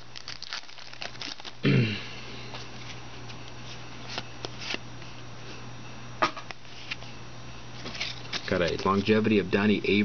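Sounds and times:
flipping through trading cards: 0:02.5 - 0:04.8, 0:07.8 - 0:09.2.

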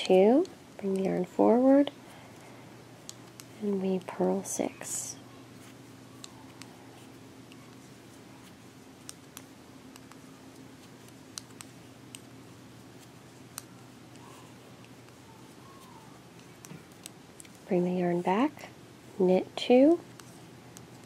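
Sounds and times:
faint low hum: 0:00.0 - 0:21.0
knitting needles clicking: 0:09.0 - 0:12.3.

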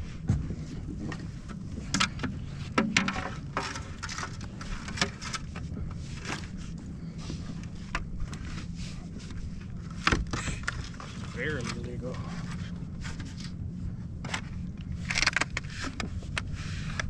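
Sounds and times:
knocks and scrapes of handling: 0:00.0 - 0:17.0
low rumble of wind: 0:00.0 - 0:17.0.

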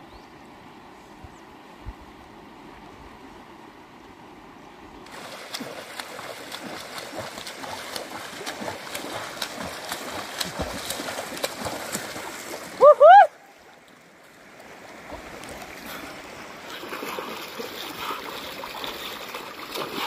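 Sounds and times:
river water rushing: 0:00.0 - 0:20.0
water splashing and trickling: 0:05.0 - 0:20.0.

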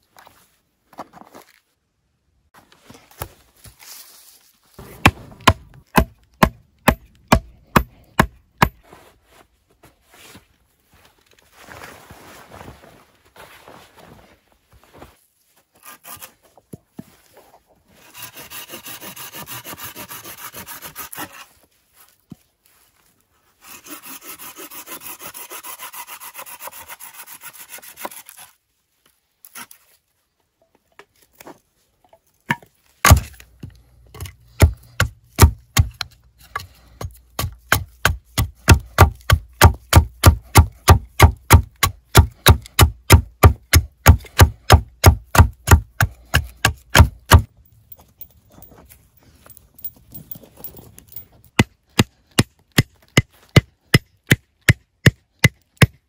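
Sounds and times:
chopping blows on wood: 0:04.8 - 0:08.8, 0:32.5 - 0:33.4, 0:34.2 - 0:47.5
hand saw cutting wood: 0:04.8 - 0:08.8, 0:15.8 - 0:16.4, 0:17.9 - 0:21.6, 0:23.6 - 0:28.6, 0:33.1 - 0:47.5.

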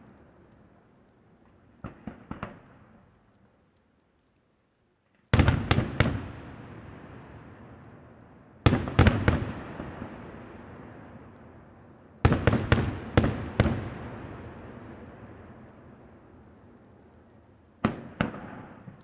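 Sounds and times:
fireworks bangs: 0:01.8 - 0:02.8, 0:05.4 - 0:07.7, 0:08.6 - 0:11.1, 0:12.2 - 0:15.6, 0:17.8 - 0:19.0.

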